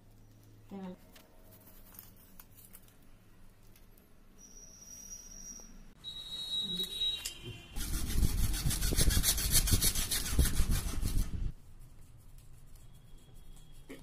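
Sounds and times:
hacksaw cutting plastic pipe: 0:07.8 - 0:11.1.

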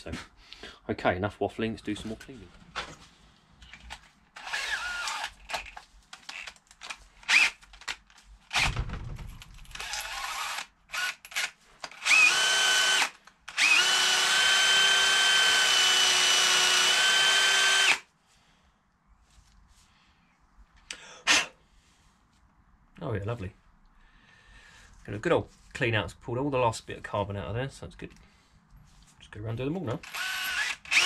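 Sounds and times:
cordless drill spinning wire brush: 0:04.4 - 0:06.5, 0:07.2 - 0:07.6, 0:09.7 - 0:18.1, 0:30.0 - 0:31.0.

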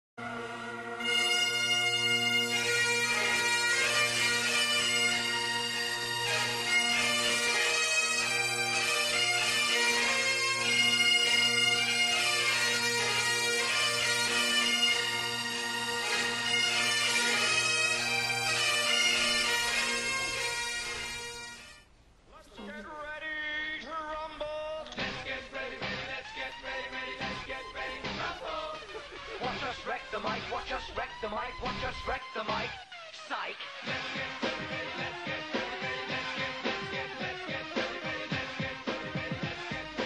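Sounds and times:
bagpipes playing: 0:00.2 - 0:21.9.

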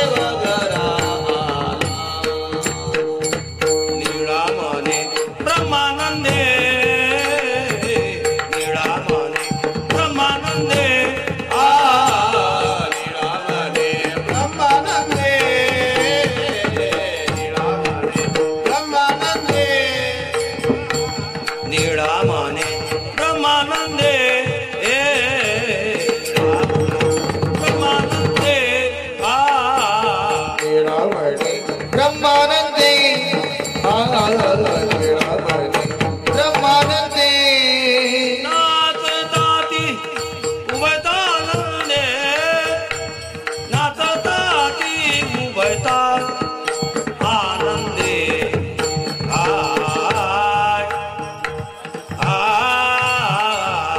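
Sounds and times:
hand drum beats: 0:00.0 - 0:38.2
man singing: 0:00.0 - 0:53.9.

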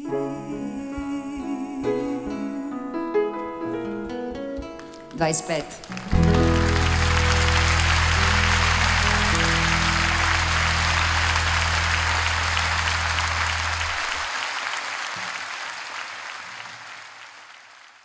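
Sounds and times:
audience applauding: 0:04.8 - 0:18.0
band holding low chord: 0:06.0 - 0:14.3.

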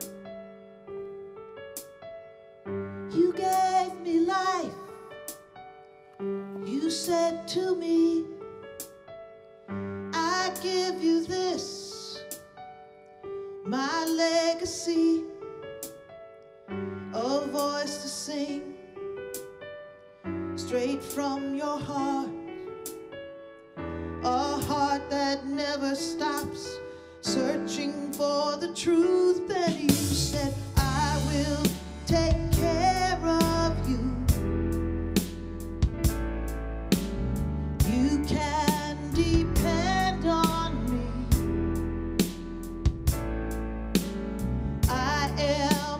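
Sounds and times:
instrumental backing: 0:00.0 - 0:45.9
woman singing slow song: 0:03.1 - 0:05.0, 0:06.6 - 0:08.4, 0:10.1 - 0:12.3, 0:13.7 - 0:15.4, 0:17.1 - 0:18.8, 0:20.6 - 0:22.4, 0:24.2 - 0:34.4, 0:37.8 - 0:41.4, 0:44.9 - 0:45.9
deep bass notes: 0:30.0 - 0:45.9.

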